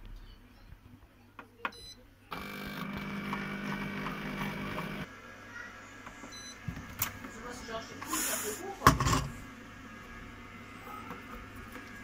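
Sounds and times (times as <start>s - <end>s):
food processor motor running: 2.3s - 5.1s.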